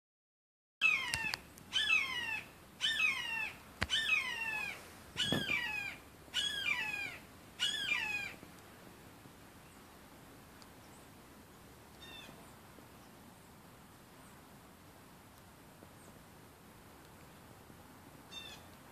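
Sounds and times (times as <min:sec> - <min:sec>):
hawk calling: 0:00.8 - 0:08.4.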